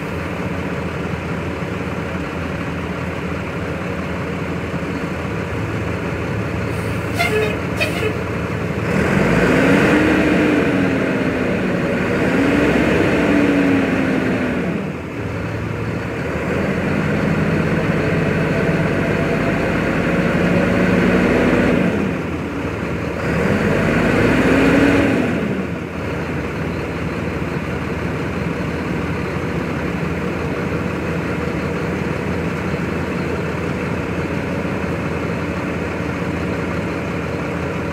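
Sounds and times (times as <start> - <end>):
diesel truck engine revving: 0.0 - 37.9.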